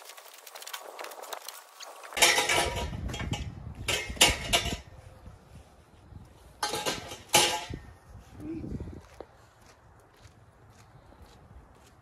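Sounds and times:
metal poles clattering: 0:02.1 - 0:05.0, 0:06.6 - 0:07.9.

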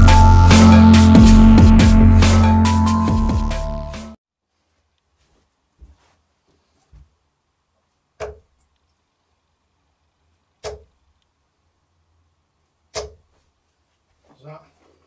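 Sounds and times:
darts hitting dartboard: 0:08.2 - 0:08.5, 0:10.6 - 0:10.9, 0:12.9 - 0:13.2.

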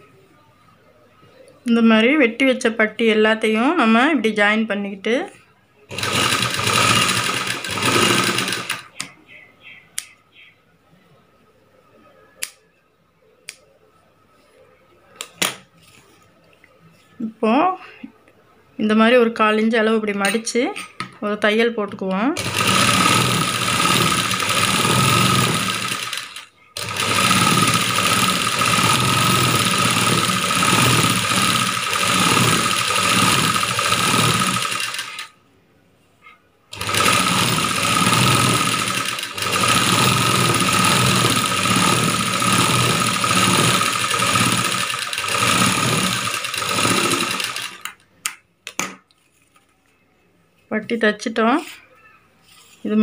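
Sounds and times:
sewing machine whine: 0:05.9 - 0:09.0, 0:22.4 - 0:35.3, 0:36.7 - 0:48.0.

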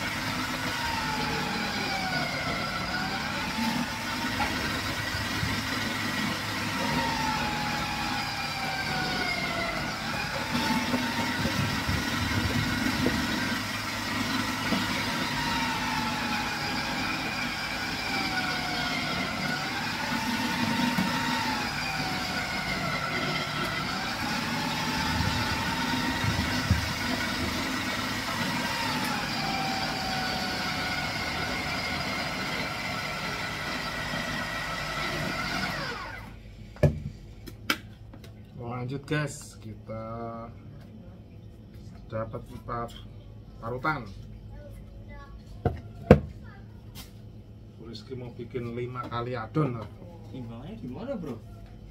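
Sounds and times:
electric grating machine whining: 0:00.0 - 0:36.4.

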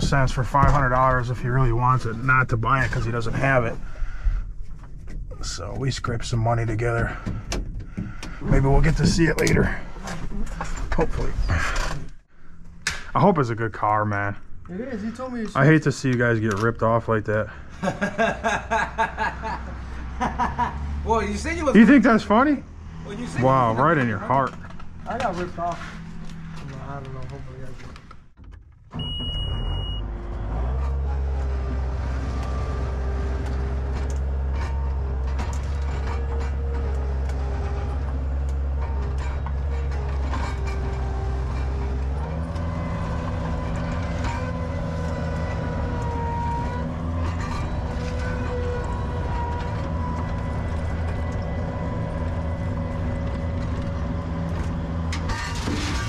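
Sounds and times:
large engine running: 0:00.0 - 0:04.0, 0:30.0 - 0:56.0
short high beep: 0:29.0 - 0:30.0.

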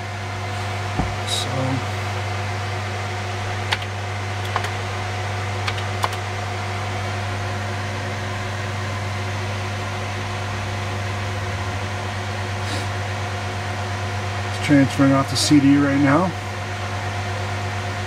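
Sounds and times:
server hum and whir: 0:00.0 - 0:18.0.

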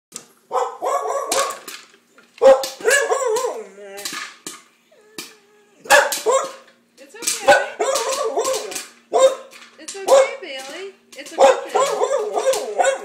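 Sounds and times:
dog barking and yelping: 0:00.5 - 0:01.7, 0:02.4 - 0:04.1, 0:05.0 - 0:06.7, 0:07.4 - 0:09.5, 0:11.4 - 0:13.0
popcorn popper running: 0:01.3 - 0:04.7, 0:05.9 - 0:13.0
dog whining: 0:04.9 - 0:06.6.

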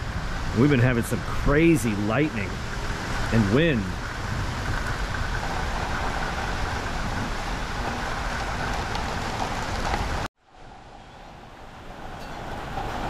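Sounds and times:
rain: 0:00.0 - 0:13.0
wind rumbling on microphone: 0:00.0 - 0:13.0.

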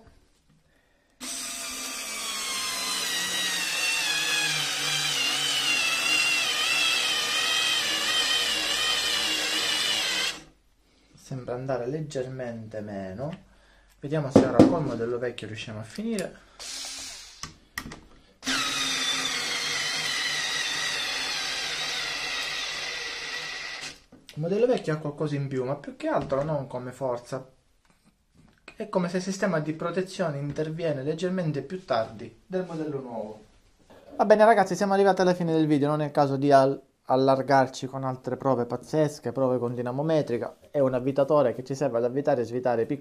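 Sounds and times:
cordless screwdriver whining: 0:01.2 - 0:10.5, 0:18.4 - 0:24.0
cordless screwdriver motor whine: 0:18.4 - 0:24.0.

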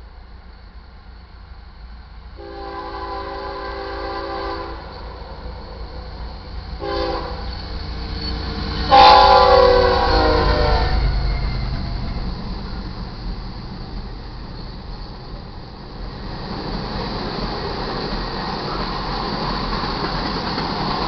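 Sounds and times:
train rumble: 0:00.0 - 0:21.0
locomotive air horn blasts: 0:02.4 - 0:05.2, 0:06.8 - 0:07.5, 0:08.9 - 0:11.0.

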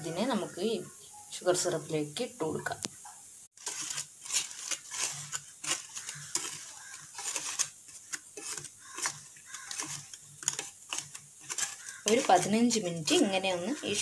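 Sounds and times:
wooden spatula scraping a pan: 0:03.6 - 0:14.0
spatula tapping a pan: 0:05.6 - 0:13.8.

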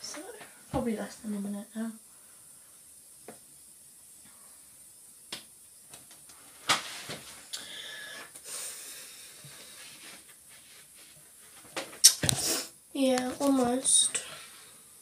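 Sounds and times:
rustling and rubbing: 0:06.2 - 0:07.5, 0:09.5 - 0:14.2.

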